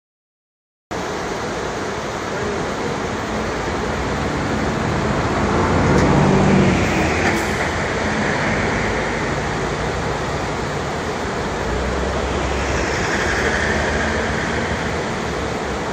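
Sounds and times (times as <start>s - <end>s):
stream rushing over rapids: 1.0s - 15.9s
low rumble: 5.4s - 15.9s.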